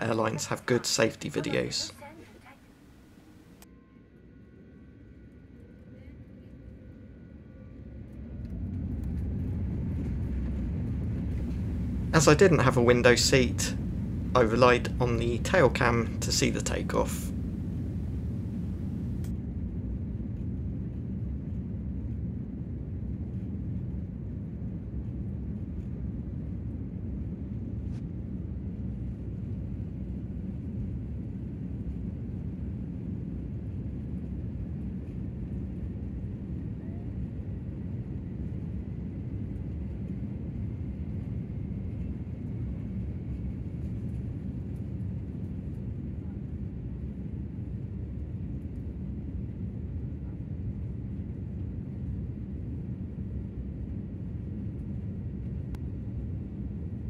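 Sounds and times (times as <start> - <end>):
faint high whine: 0.0 - 5.1, 11.3 - 19.3
jet engines deep rumble: 4.2 - 57.0.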